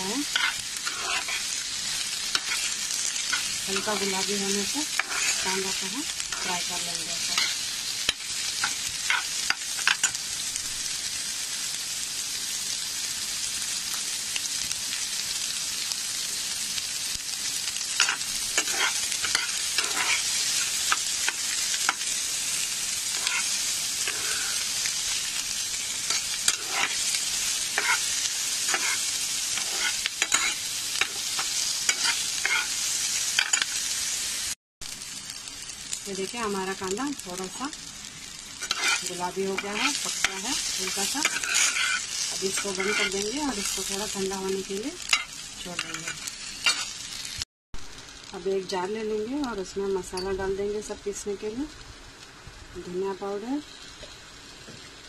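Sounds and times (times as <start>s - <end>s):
metal spoon scraping a pan: 0.0s - 1.6s, 2.3s - 10.2s, 18.0s - 22.2s, 23.1s - 24.8s, 26.0s - 32.8s, 38.6s - 43.8s, 45.0s - 46.9s
onions sizzling in oil: 0.0s - 55.0s.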